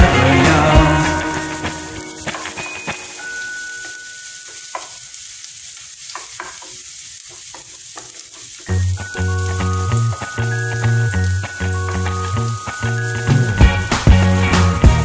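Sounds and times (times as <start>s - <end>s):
loud music with steady beat: 0.0s - 2.0s, 13.3s - 15.0s
food sizzling in oil: 0.0s - 15.0s
wooden spatula scraping pan: 4.4s - 8.7s.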